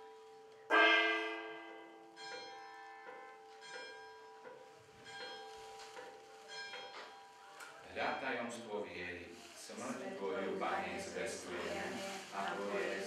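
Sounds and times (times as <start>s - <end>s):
bell ringing: 0.7s - 7.8s.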